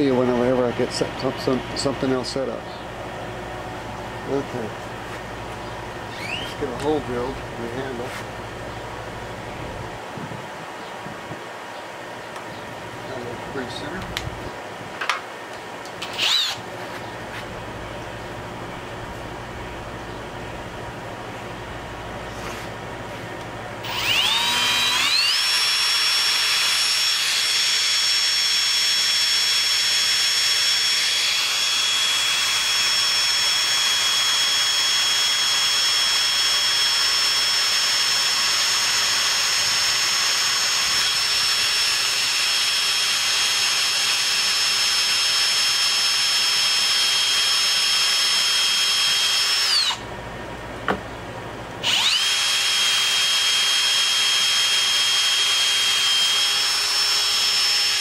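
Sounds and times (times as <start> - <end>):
cordless drill boring wood: 6.1 - 6.6, 16.0 - 16.6, 23.8 - 50.0, 51.8 - 58.0.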